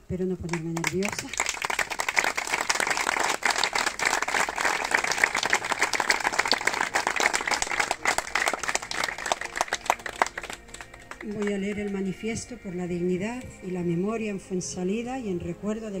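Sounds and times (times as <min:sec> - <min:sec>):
crowd clapping: 0:00.4 - 0:12.0.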